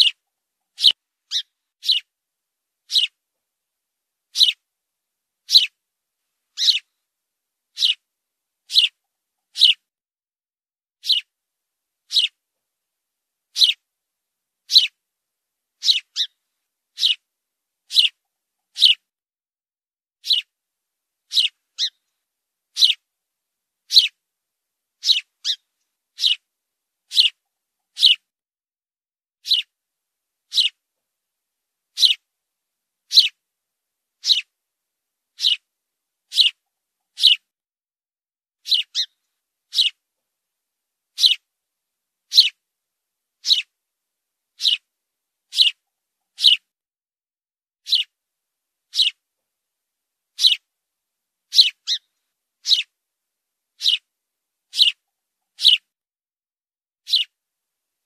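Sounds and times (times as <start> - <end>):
sparrow chirping: 0.0 - 2.1, 2.9 - 3.2, 4.3 - 4.6, 5.4 - 5.8, 6.5 - 6.9, 7.7 - 8.1, 8.7 - 9.8, 11.0 - 11.3, 12.1 - 12.4, 13.5 - 13.8, 14.6 - 15.0, 15.8 - 17.3, 17.9 - 19.1, 20.2 - 20.5, 21.3 - 22.1, 22.7 - 23.0, 23.8 - 24.2, 25.0 - 26.5, 27.1 - 28.3, 29.4 - 29.7, 30.5 - 30.8, 31.9 - 32.3, 33.1 - 33.4, 34.2 - 34.5, 35.3 - 35.7, 36.3 - 37.5, 38.6 - 40.0, 41.1 - 41.5, 42.3 - 42.6, 43.4 - 43.7, 44.6 - 44.9, 45.5 - 46.7, 47.8 - 48.2, 48.9 - 49.2, 50.4 - 50.7, 51.5 - 52.9, 53.8 - 54.1, 54.7 - 55.9, 57.0 - 57.4.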